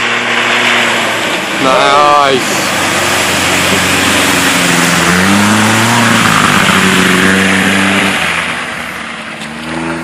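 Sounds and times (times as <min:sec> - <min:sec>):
truck engine running hard: 0:00.0 - 0:10.0
splashing muddy water: 0:00.1 - 0:09.9.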